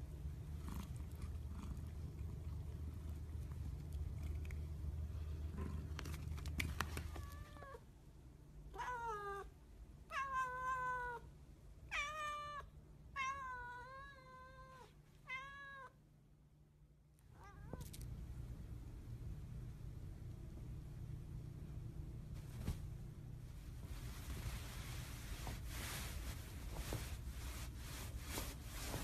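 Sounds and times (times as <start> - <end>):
cat purring: 0.2 - 6.2
cat chewing on toy: 0.5 - 6.6
cat meowing: 8.7 - 9.5, 10.1 - 11.2, 11.9 - 16.0.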